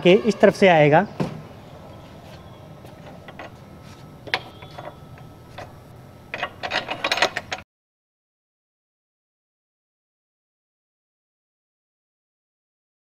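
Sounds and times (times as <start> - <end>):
metal clicks and clinks: 3.0 - 3.6, 4.2 - 7.6
nut tightening clicks: 4.2 - 7.6.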